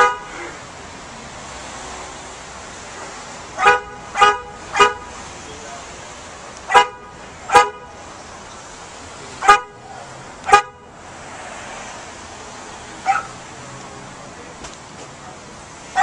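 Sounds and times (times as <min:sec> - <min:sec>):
car horn honks: 0:00.0 - 0:00.4, 0:03.6 - 0:05.2, 0:06.7 - 0:08.0, 0:09.4 - 0:11.0
dog bark: 0:03.6 - 0:05.0, 0:13.0 - 0:13.4.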